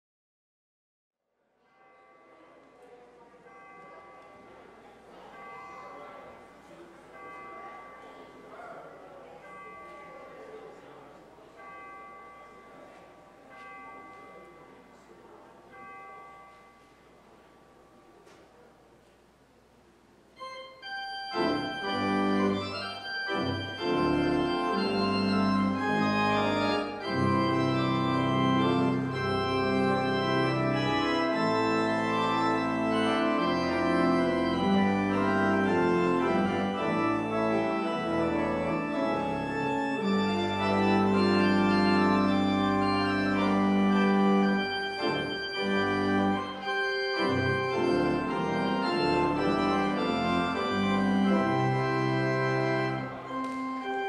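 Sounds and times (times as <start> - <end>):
pipe organ sustained chords: 20.4 - 54.0.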